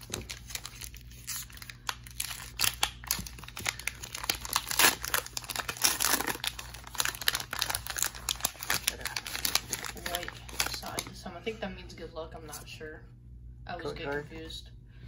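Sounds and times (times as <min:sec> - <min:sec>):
foil wrapper tearing and crinkling: 0:00.0 - 0:11.1
foil pack crackling: 0:00.0 - 0:11.2.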